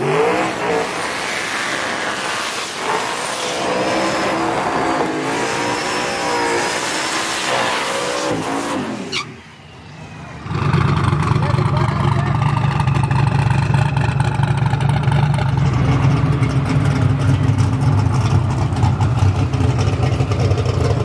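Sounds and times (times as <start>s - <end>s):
drag car engines revving: 0.0s - 21.0s.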